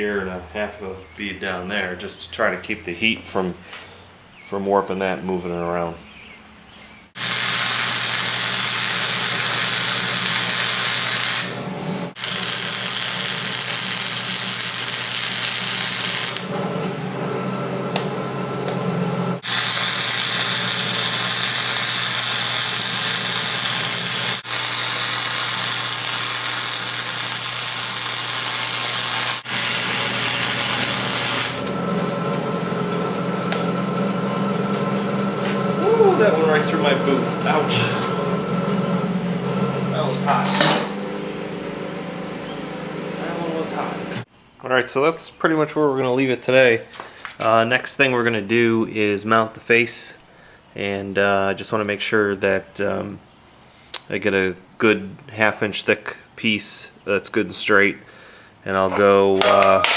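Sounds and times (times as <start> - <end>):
welding arc crackling: 7.2 - 16.6, 19.4 - 34.2, 59.4 - 59.9
steady low hum: 29.5 - 44.3.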